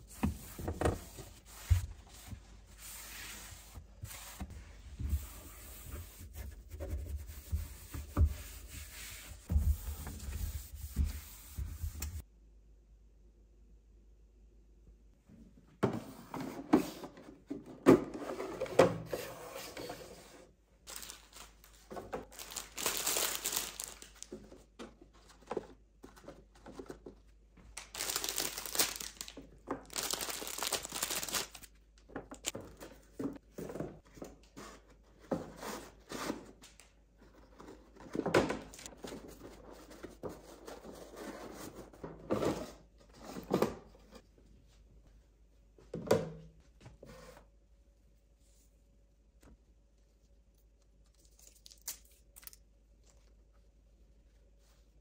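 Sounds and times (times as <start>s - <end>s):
plastic packaging crinkling and tearing: 20.9s - 21.7s, 22.3s - 24.3s, 27.8s - 31.7s.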